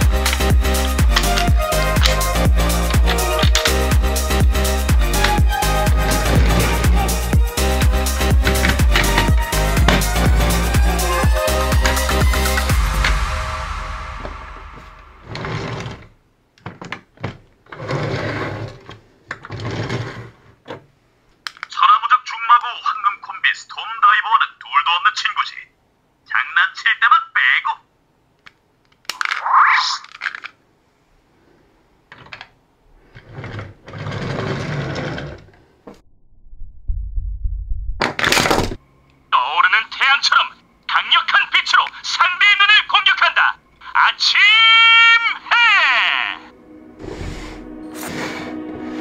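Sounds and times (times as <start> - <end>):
background music: 0.0 - 16.0, 42.4 - 49.0
plastic toy parts clicking: 3.4 - 3.8, 21.4 - 21.7, 28.4 - 30.6.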